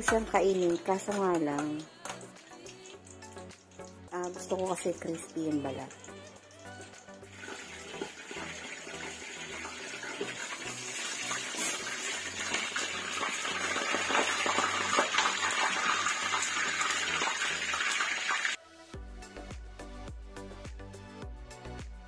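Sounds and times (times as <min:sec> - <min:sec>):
meat sizzling in hot oil: 0:05.9 - 0:18.6.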